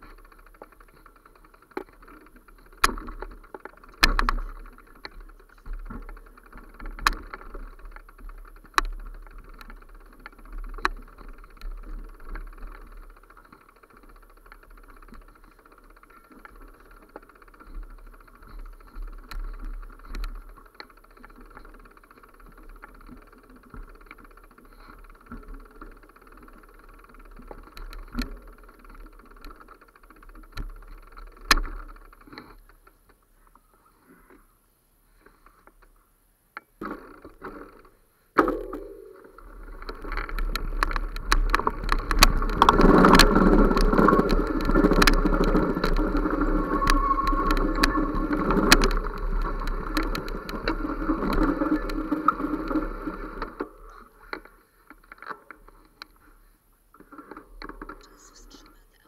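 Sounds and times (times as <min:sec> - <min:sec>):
camera rattling and knocking: 0:36.8 - 0:53.6.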